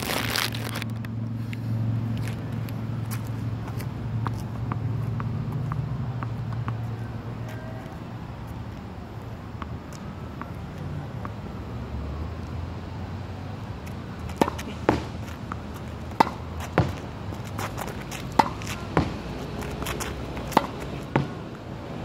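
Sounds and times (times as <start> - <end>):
racket hitting tennis ball: 13.9 - 21.5.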